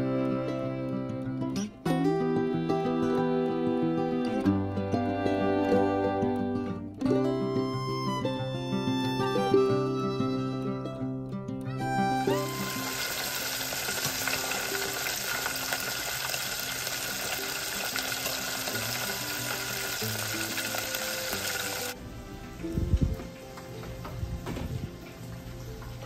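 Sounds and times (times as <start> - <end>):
soft music: 0.0 - 26.0
chicken sizzling in deep fryer: 12.3 - 26.0.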